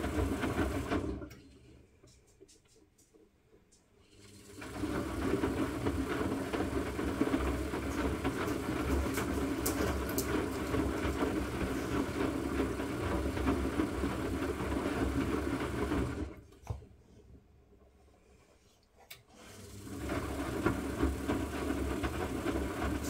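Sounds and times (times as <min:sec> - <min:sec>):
washing machine drum tumbling: 0:00.0 - 0:01.3, 0:04.5 - 0:16.4, 0:19.9 - 0:23.0.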